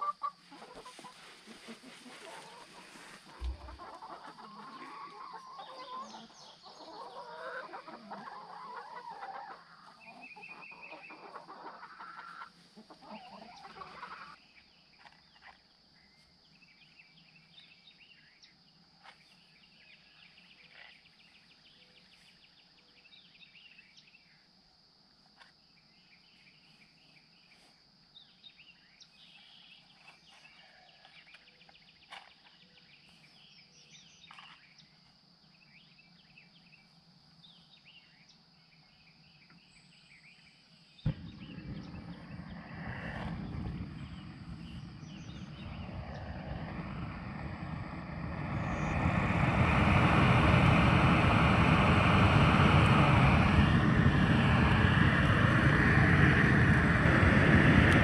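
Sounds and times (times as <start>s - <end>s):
chickens clucking: 0.0s - 14.4s
faint bird calls: 0.0s - 16.3s, 26.0s - 34.9s, 41.1s - 49.3s
weed torch whooshing: 1.3s - 3.9s, 41.1s - 58.0s.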